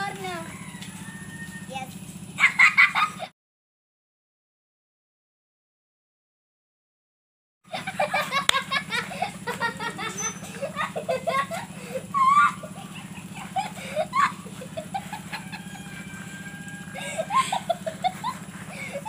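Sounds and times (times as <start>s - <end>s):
children laughing: 0.0s - 3.3s, 7.7s - 19.0s
steady low hum: 7.7s - 19.0s.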